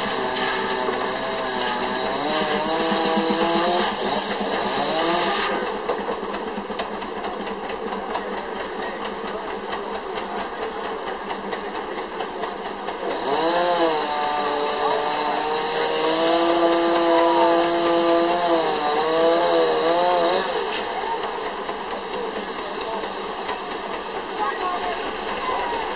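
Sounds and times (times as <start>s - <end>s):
circular saw whine: 0.0s - 6.5s, 13.1s - 23.0s
steam engine rapid beat: 0.0s - 25.9s.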